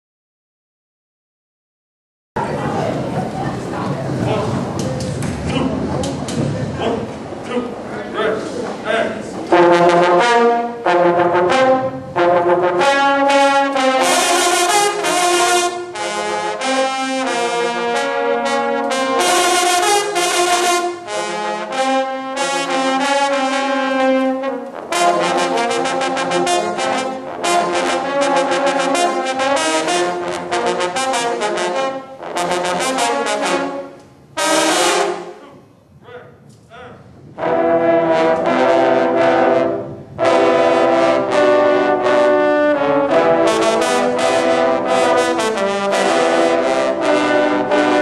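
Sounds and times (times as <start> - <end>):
baritone horns playing fanfare: 9.0 - 36.2, 37.3 - 48.0.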